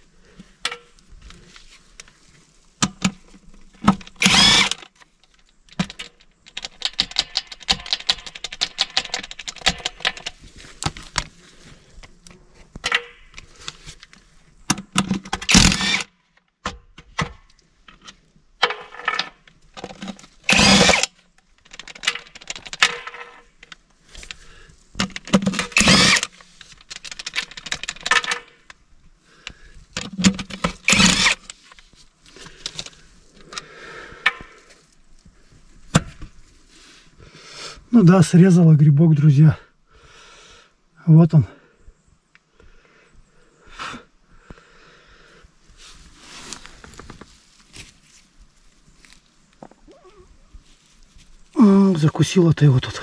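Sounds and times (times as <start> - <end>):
power tool running in bursts: 4.2 - 4.8, 15.5 - 16.0, 20.5 - 21.1, 25.7 - 26.3, 30.9 - 31.4.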